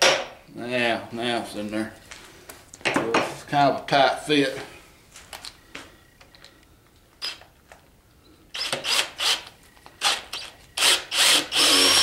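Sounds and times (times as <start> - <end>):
cordless drill spinning: 7.2 - 7.5, 8.5 - 12.0.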